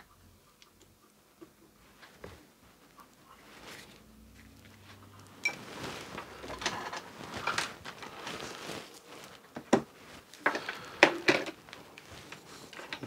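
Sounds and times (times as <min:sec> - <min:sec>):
light rustling: 0:03.4 - 0:13.0.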